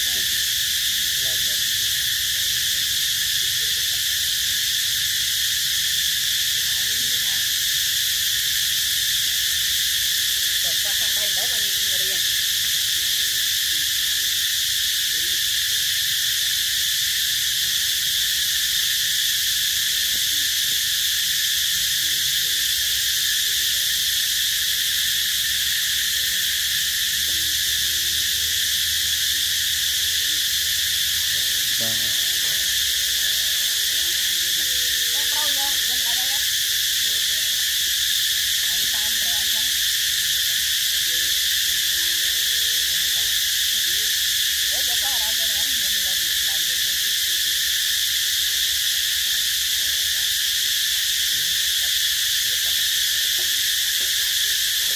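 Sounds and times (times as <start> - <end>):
high-pitched insect chorus: 0.0 - 54.9.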